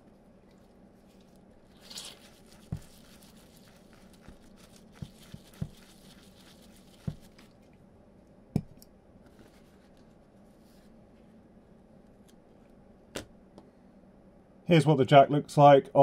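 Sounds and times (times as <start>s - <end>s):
brush scrubbing circuit board: 1.7s - 7.6s.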